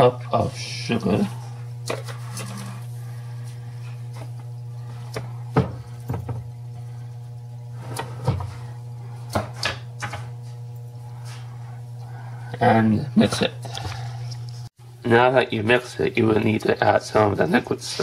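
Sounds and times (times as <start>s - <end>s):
low hum: 0.0s - 16.4s.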